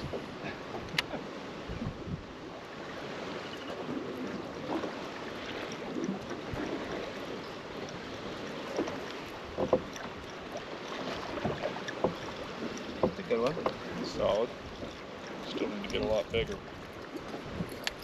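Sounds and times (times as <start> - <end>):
waves lapping against boat hull: 0.0 - 18.0
light knocks on hull: 8.6 - 14.0.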